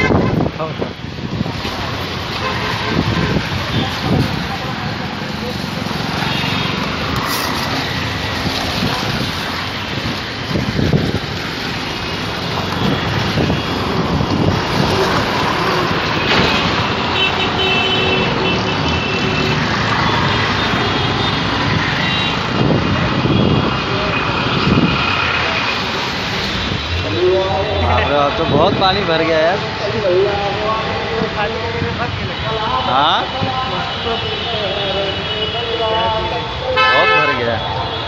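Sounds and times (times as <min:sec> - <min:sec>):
street traffic: 0:00.0 - 0:38.0
heavy rain falling: 0:01.0 - 0:17.6.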